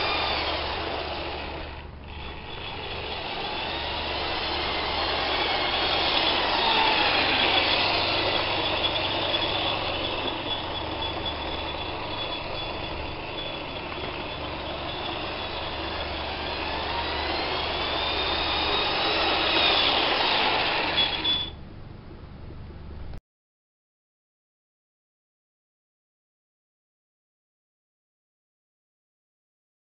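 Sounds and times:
model train motor whining: 0.0 - 21.5
wheels rattling over rails: 0.0 - 21.5.

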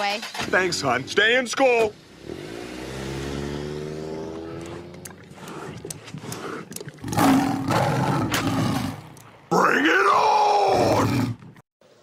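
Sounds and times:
loud rough roar: 2.2 - 6.3.

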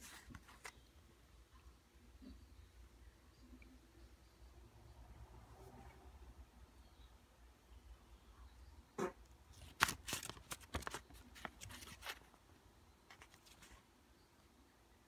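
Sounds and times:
paper banknote crinkling: 9.5 - 12.4, 13.1 - 13.8.

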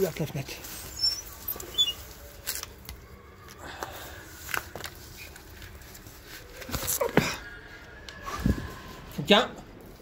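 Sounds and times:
rustling: 0.0 - 7.4.

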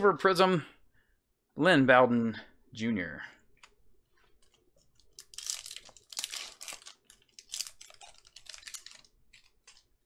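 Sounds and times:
foil wrapper crinkling and tearing: 5.0 - 10.0.

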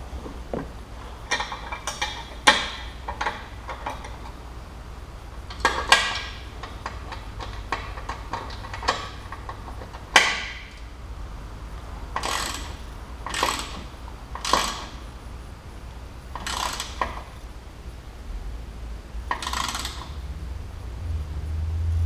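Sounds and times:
wrench clacking: 1.3 - 4.4, 5.5 - 10.8, 12.1 - 15.0, 16.3 - 17.3, 19.3 - 20.2
wrench rasping strokes: 12.2 - 15.0, 16.4 - 17.2, 19.3 - 20.2.

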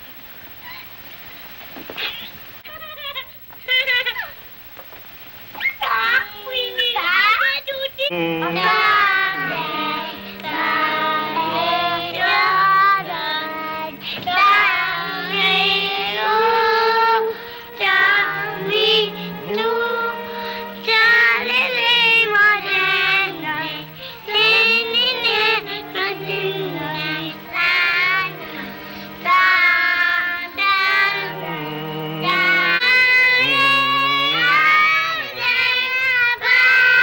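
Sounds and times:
low sustained accompaniment: 8.1 - 36.0
girls singing together: 8.1 - 37.0.

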